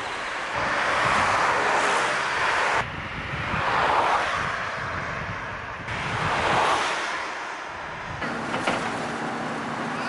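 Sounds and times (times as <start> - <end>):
cars passing close by: 0.0 - 10.0
bus interior hum: 4.8 - 10.0.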